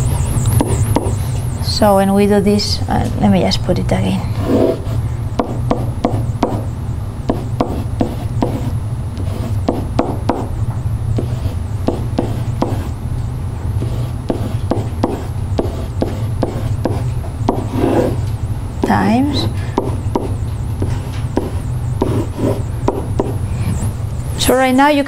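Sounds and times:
steady low hum: 0.0s - 25.0s
pen tapping and scraping whiteboard: 0.6s - 1.2s, 7.3s - 10.5s, 11.2s - 12.9s, 13.8s - 23.4s.

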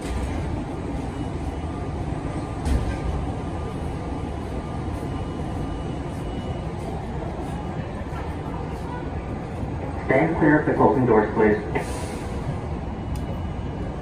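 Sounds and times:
subway car rumble and hum: 0.0s - 14.0s.

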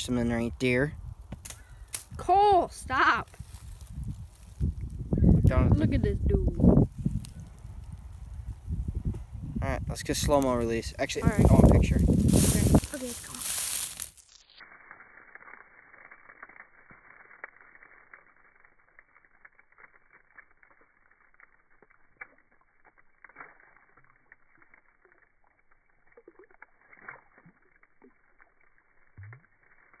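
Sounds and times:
low crackling and clicks: 0.0s - 30.0s
fish splashing in shallow water: 11.2s - 30.0s.

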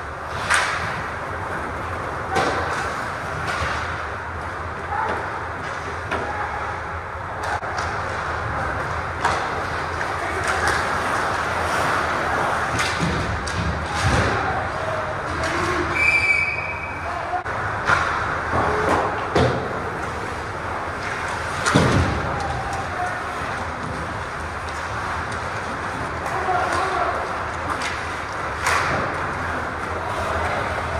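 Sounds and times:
pucks and sticks hitting boards: 0.0s - 16.7s, 17.4s - 30.9s
skates scraping ice: 7.5s - 16.7s, 17.6s - 30.9s
high whistle: 15.9s - 17.0s.

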